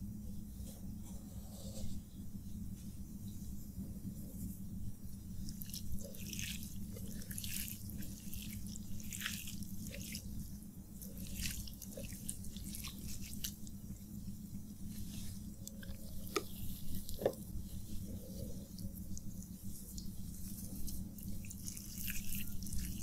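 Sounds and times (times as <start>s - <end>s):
fingers squelching wet rice: 5.0s - 23.0s.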